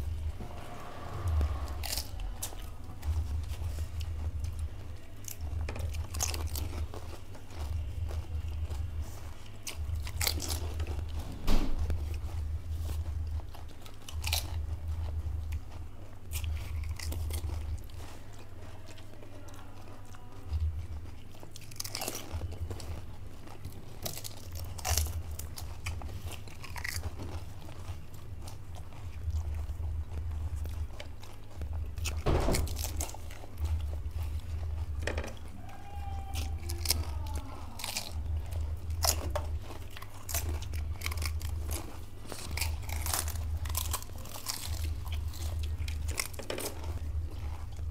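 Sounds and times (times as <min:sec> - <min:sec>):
low hum: 0:00.0 - 0:18.7
chewing: 0:00.0 - 0:47.9
crisp shells crunching: 0:00.0 - 0:47.9.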